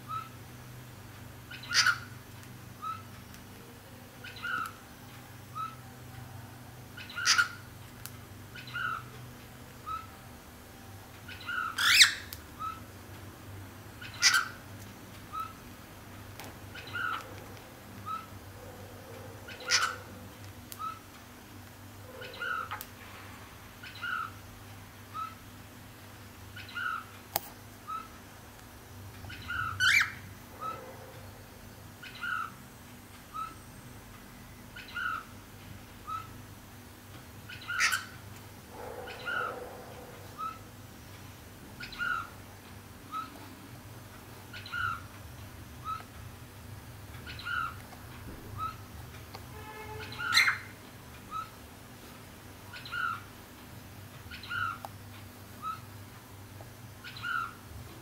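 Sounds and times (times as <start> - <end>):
cockatiel chirping: 1.5 - 2.1, 7.0 - 7.6, 11.3 - 12.8, 14.0 - 14.6, 19.5 - 20.0, 29.3 - 30.8, 37.5 - 38.2, 49.9 - 50.7.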